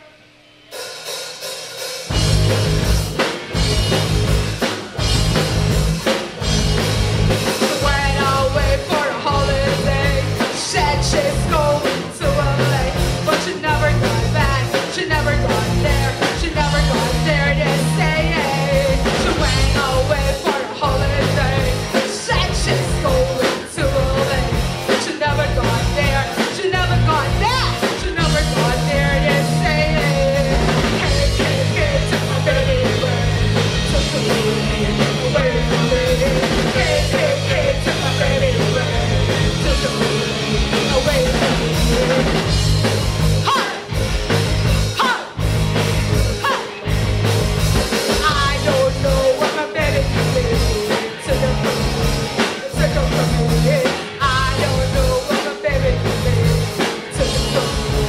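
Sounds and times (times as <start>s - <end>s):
rock band playing: 0.0s - 58.0s
woman singing into microphone: 7.7s - 33.3s.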